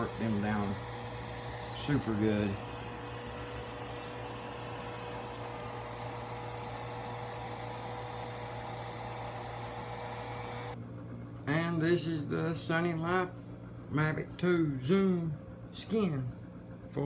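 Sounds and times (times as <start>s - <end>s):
hair dryer running: 0.0s - 10.8s.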